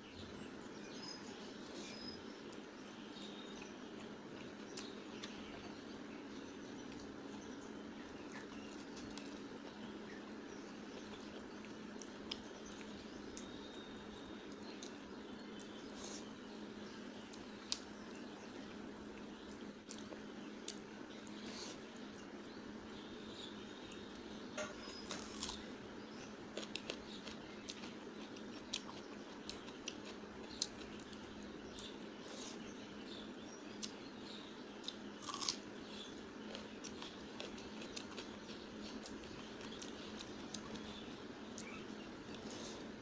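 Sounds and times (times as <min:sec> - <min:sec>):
steady low background noise: 0:00.0 - 0:43.0
chewing and smacking: 0:06.6 - 0:16.6, 0:26.5 - 0:43.0.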